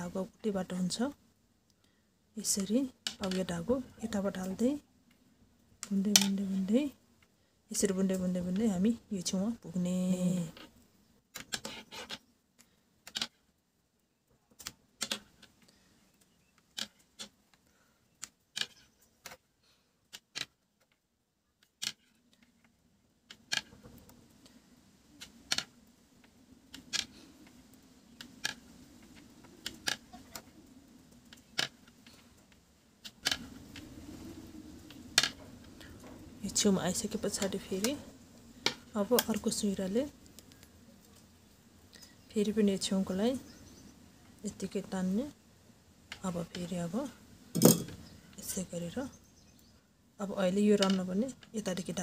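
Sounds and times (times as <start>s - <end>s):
knitting needles clicking: 0.0s - 5.2s, 5.8s - 9.6s, 10.2s - 13.5s, 14.5s - 19.4s, 20.1s - 21.0s, 25.2s - 33.9s, 38.6s - 41.3s, 50.5s - 52.0s.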